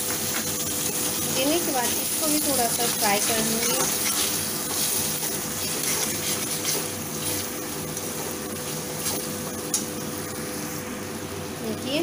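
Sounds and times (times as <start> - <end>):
vegetables sizzling in hot oil: 0.0 - 12.0
spatula scraping a pan: 2.8 - 7.4.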